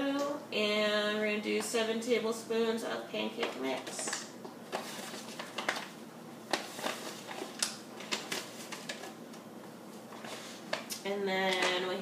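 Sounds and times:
foil-lined bag rustling: 3.8s - 9.2s, 10.0s - 12.0s.

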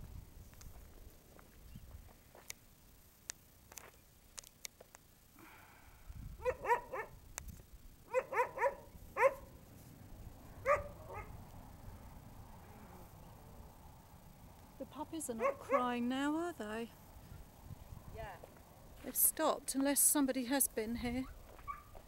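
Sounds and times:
dogs barking: 6.4s - 7.2s, 8.1s - 9.6s, 10.6s - 11.4s, 15.4s - 16.0s, 21.7s - 22.0s.

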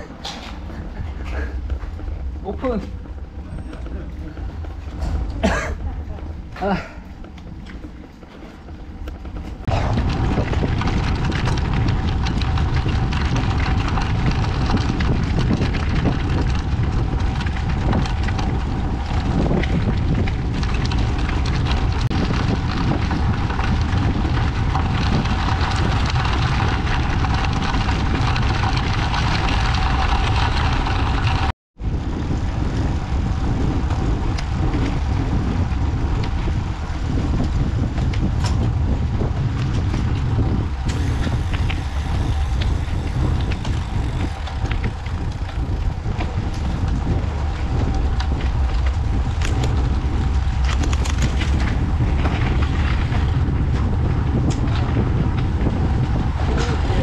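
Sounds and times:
bicycle road noise: 0.0s - 57.0s
wind noise on microphone: 0.0s - 57.0s.

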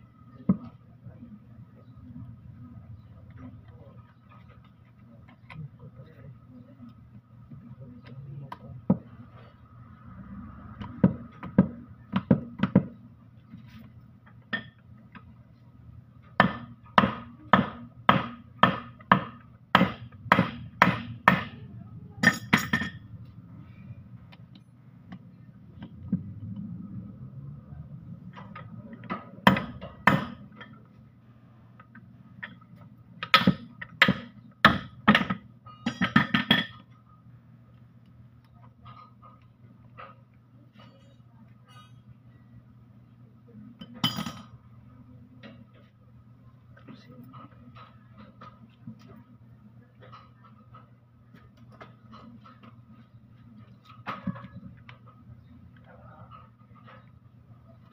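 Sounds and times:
hammer knocking on metal housing: 16.4s - 21.6s.

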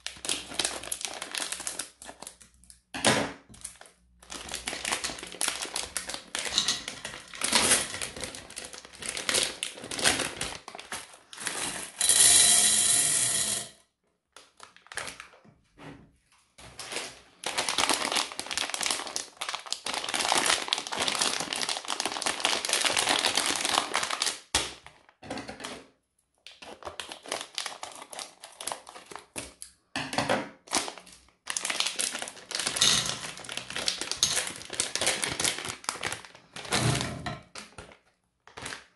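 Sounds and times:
candy wrappers crinkling and tearing: 0.0s - 2.9s, 3.5s - 12.0s, 14.3s - 15.4s, 16.8s - 25.2s, 26.4s - 29.6s, 30.6s - 38.9s
hard candies rattling into platter: 4.2s - 13.6s, 30.8s - 37.1s.

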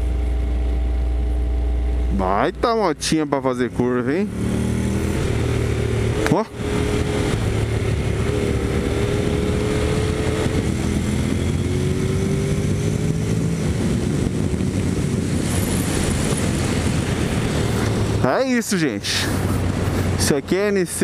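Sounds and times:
motorcycle engine running: 0.0s - 20.7s
wind rush over microphone: 4.6s - 20.6s.

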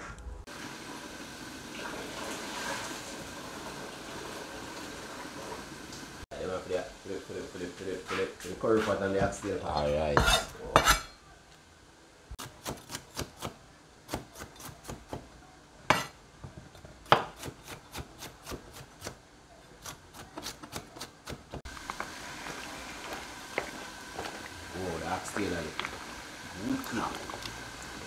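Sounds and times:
knife chopping on cutting board: 17.0s - 19.2s.

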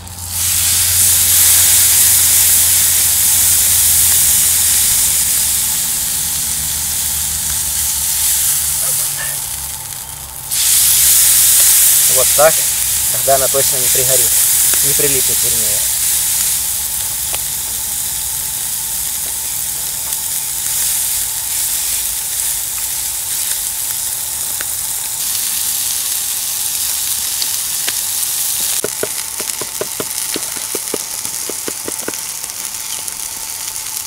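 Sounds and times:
chicken sizzling on a grill: 0.0s - 34.0s
knife chopping on wooden board: 28.8s - 32.2s.

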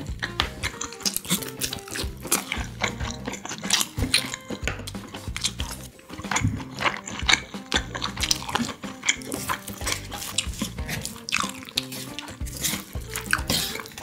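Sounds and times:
spoon scraping metal lunch box: 0.0s - 14.0s
wet sticky food mixing: 0.0s - 14.0s.

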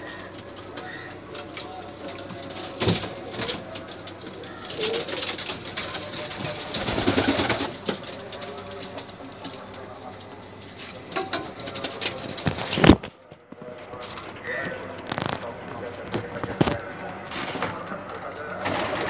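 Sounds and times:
pigeons cooing: 0.0s - 13.0s.

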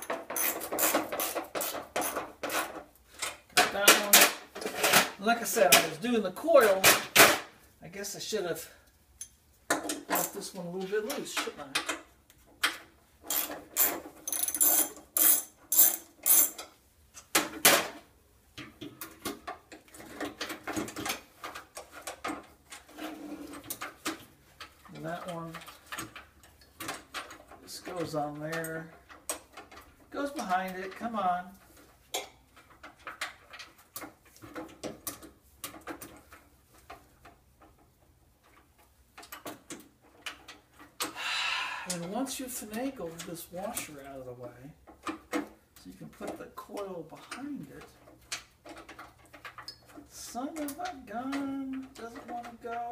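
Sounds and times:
hand tools clicking and rasping: 0.0s - 6.0s, 9.2s - 17.5s, 44.8s - 52.9s
light metal clicks and taps: 8.9s - 10.3s.

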